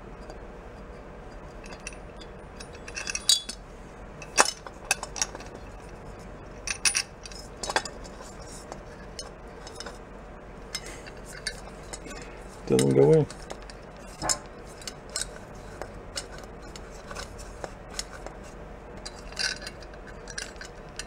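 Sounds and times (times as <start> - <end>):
metal parts clinking: 1.6 - 3.6, 4.2 - 5.9, 6.6 - 10.0, 10.7 - 18.3, 19.0 - 21.0.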